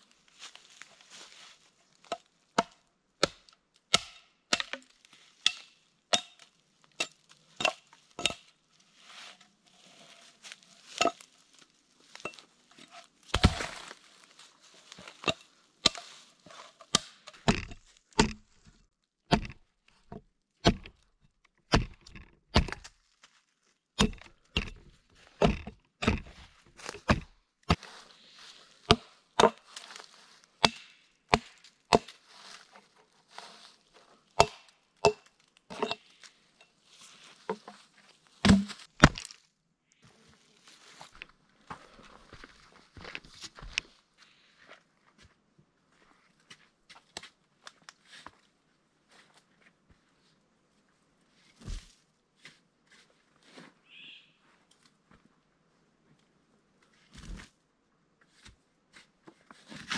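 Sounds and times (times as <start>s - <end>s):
axe chopping wood: 2.6s - 6.4s, 13.3s - 13.9s, 16.9s - 18.5s, 19.3s - 19.6s, 20.6s - 21.0s, 21.7s - 22.9s, 24.0s - 27.8s, 28.8s - 29.6s, 30.6s - 32.2s, 34.4s - 36.0s, 38.4s - 39.3s
wood cracking: 13.2s - 14.3s, 16.9s - 23.0s, 24.0s - 27.8s, 38.4s - 39.5s.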